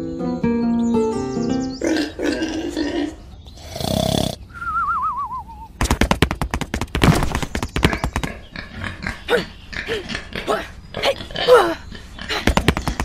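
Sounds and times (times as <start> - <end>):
cartoon pig grunt and snort: 1.9 - 4.5.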